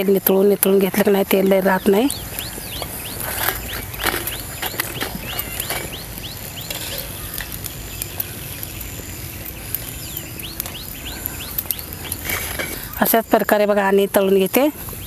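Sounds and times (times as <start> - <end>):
birds chirping: 0.0 - 15.0
hot oil sizzling and crackling: 0.0 - 15.0.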